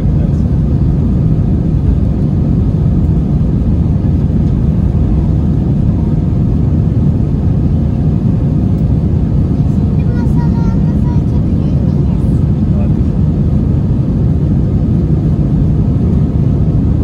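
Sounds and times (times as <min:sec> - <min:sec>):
airplane cabin engine rumble: 0:00.0 - 0:17.0.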